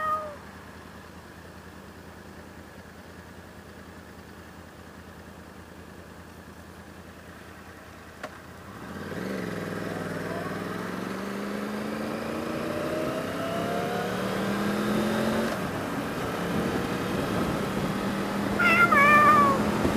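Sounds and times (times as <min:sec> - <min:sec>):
cat meowing: 0:00.0 - 0:00.4, 0:18.6 - 0:19.7
motorcycle engine revving: 0:08.3 - 0:19.9.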